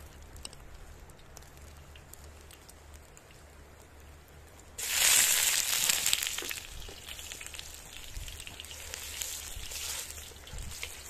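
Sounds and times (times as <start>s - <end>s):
food sizzling in a hot pan: 4.8s - 11.0s.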